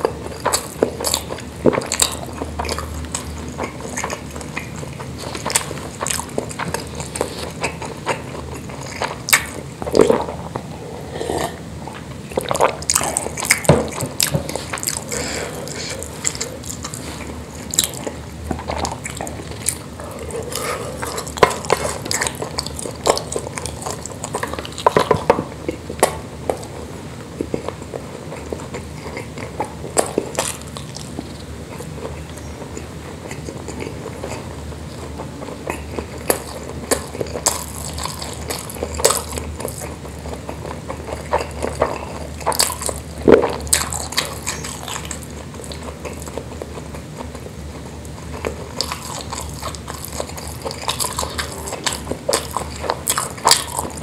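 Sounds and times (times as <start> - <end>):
person chewing wetly: 0.0 - 54.0.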